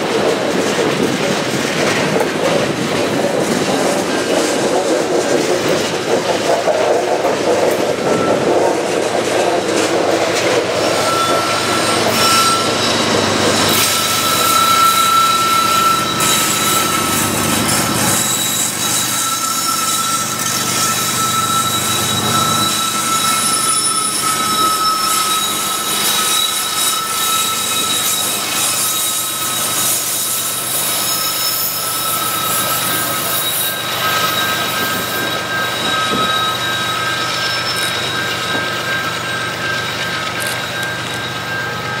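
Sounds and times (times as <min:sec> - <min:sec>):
freight train rumble: 0:00.0 - 0:42.0
train wheel squeal: 0:00.0 - 0:42.0.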